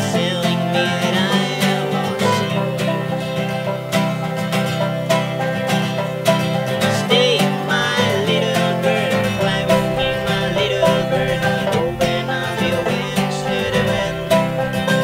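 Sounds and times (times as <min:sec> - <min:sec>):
acoustic guitar: 0:00.0 - 0:15.0
banjo: 0:00.0 - 0:15.0
wavering pitch-bending melody: 0:09.0 - 0:15.0.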